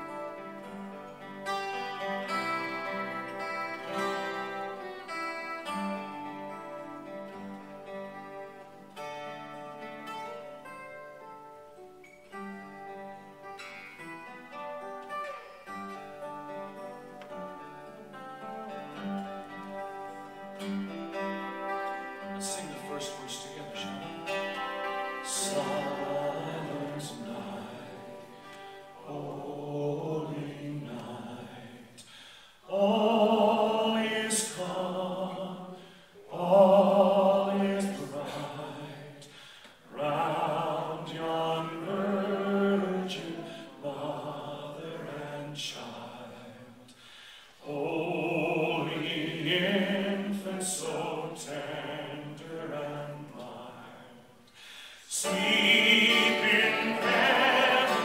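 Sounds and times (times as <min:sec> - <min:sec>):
acoustic guitar: 0:00.0 - 0:58.0
man singing slow song: 0:21.3 - 0:58.0.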